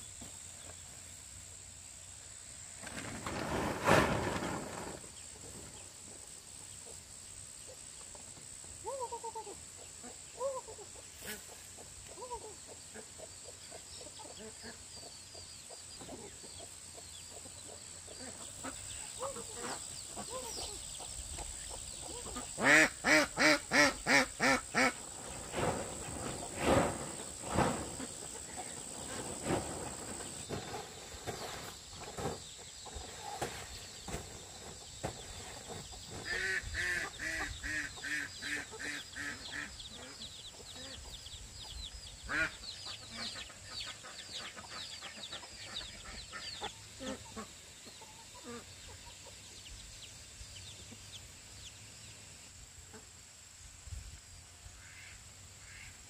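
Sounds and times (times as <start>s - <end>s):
chickens clucking: 4.2s - 51.4s
ducks quacking: 22.0s - 25.0s, 36.2s - 41.1s, 42.3s - 47.6s.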